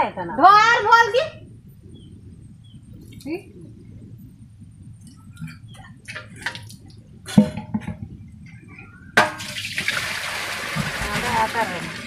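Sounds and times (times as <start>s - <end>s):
water pouring: 9.4s - 12.0s.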